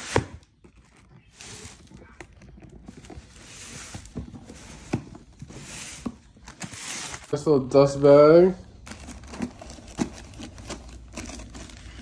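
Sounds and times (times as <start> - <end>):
cardboard boxes rustling: 0.0 - 12.0.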